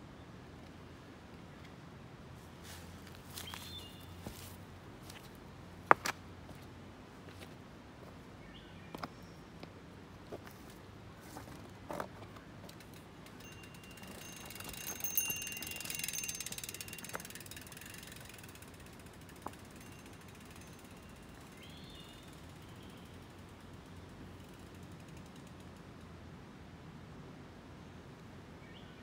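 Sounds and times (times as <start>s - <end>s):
bicycle freehub ratcheting clicks: 12.7s - 25.8s.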